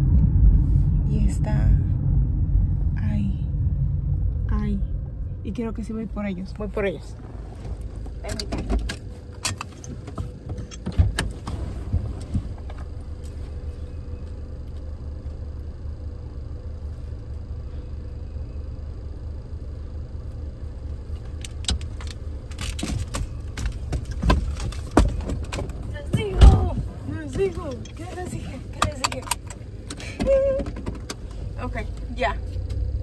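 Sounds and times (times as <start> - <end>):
car engine idling: 0.0 - 33.0
seatbelt and door rattles: 6.8 - 13.3, 21.2 - 32.0.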